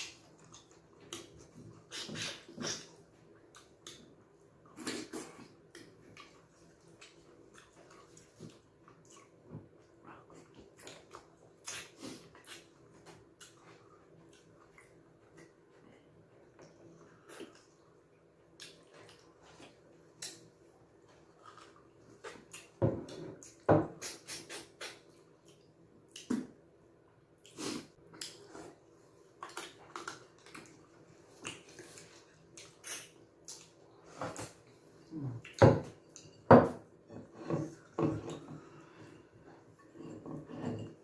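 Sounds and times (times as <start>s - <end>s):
gulps: 1.8s - 3.0s
lip smacks: 23.4s - 26.6s, 29.4s - 33.8s
wet chewing: 29.4s - 33.8s.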